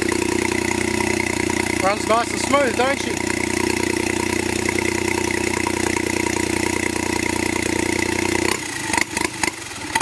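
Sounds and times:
engine idling: 0:00.0 - 0:10.0
engine knocking as it stops: 0:00.0 - 0:10.0.

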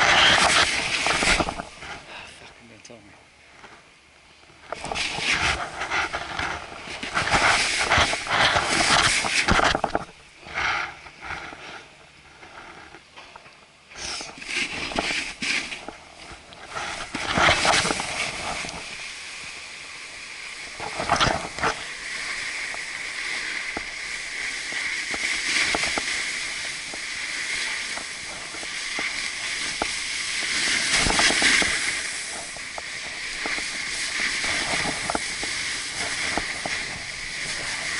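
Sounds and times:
snowboard scuffs and knocks: 0:00.0 - 0:02.0, 0:04.8 - 0:11.8, 0:14.3 - 0:19.0, 0:23.6 - 0:37.9
snowboard scraping on snow: 0:00.0 - 0:02.1, 0:04.8 - 0:12.9, 0:14.0 - 0:37.9.

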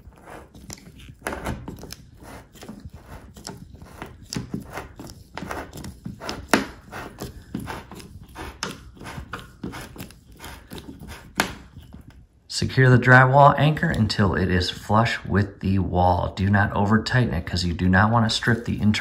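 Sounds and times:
screw anchor scraping in drywall: 0:00.0 - 0:12.0.

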